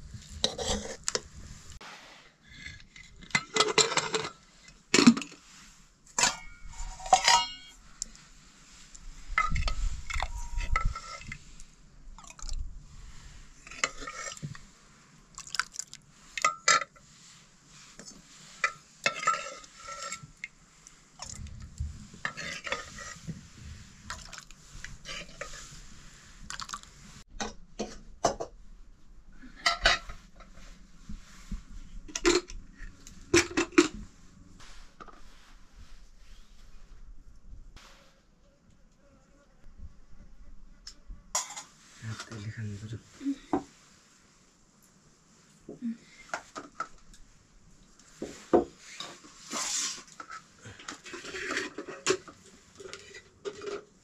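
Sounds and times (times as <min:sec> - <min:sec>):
spoons clinking on pots and plates: 0:06.2 - 0:07.8, 0:18.6 - 0:20.3.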